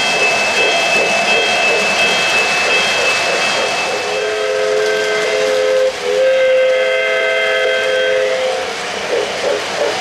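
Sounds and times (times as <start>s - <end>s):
model train steam whistle: 4.0s - 8.8s.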